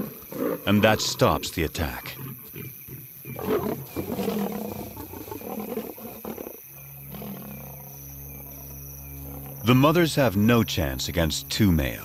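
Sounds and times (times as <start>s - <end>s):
lions growling: 0.0s - 9.8s.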